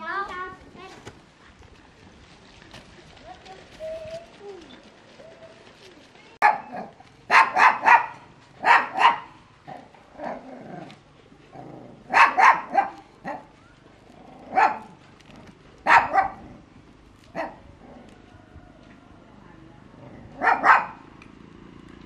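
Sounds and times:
dog barking: 0:06.4 - 0:09.8, 0:12.1 - 0:13.5, 0:14.5 - 0:15.0, 0:15.8 - 0:16.4, 0:17.4 - 0:17.6, 0:20.4 - 0:21.0.

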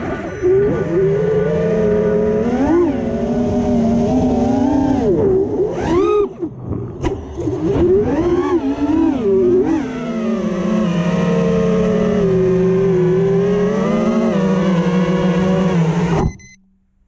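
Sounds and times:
quadcopter motors whining: 0:00.0 - 0:06.5, 0:07.6 - 0:16.3.

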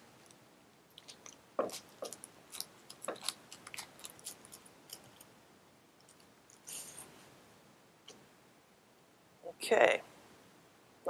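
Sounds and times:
plastic bag crinkling: 0:01.0 - 0:05.3.

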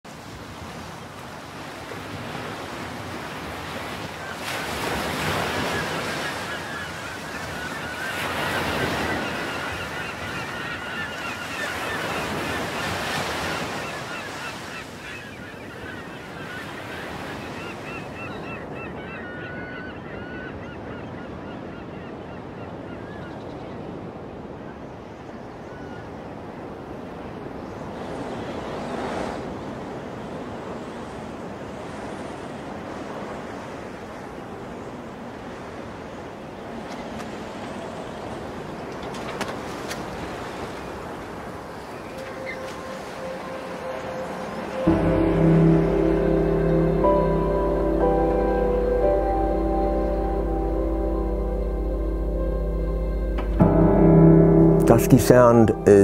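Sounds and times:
sea waves on rocky shore: 0:00.1 - 0:15.4
faint high bird calls: 0:04.2 - 0:23.9, 0:41.7 - 0:54.4.

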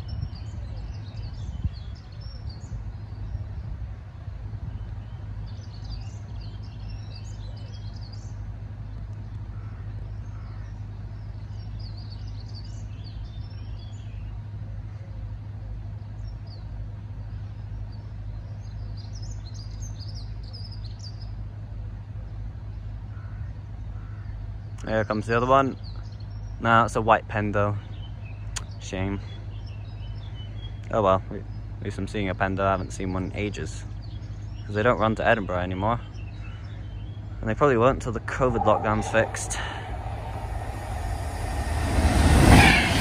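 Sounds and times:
small birds chirping: 0:04.6 - 0:15.1, 0:22.3 - 0:43.0
steady low rumble: 0:37.2 - 0:43.0.

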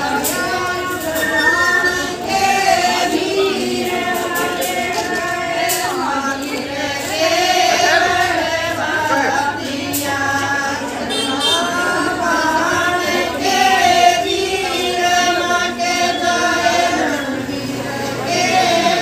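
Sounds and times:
women singing folk song: 0:00.0 - 0:19.0.

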